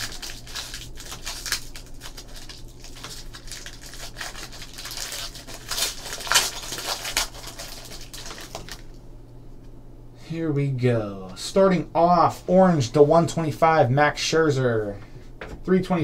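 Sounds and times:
foil wrapper crinkling and tearing: 0:00.0 - 0:09.0.

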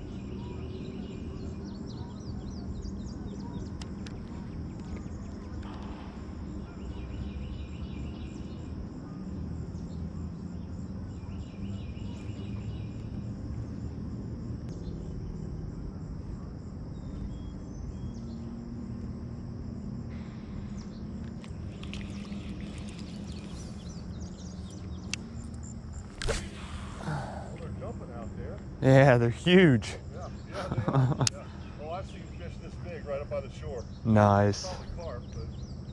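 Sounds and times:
insects chirring: 0:00.0 - 0:35.9.

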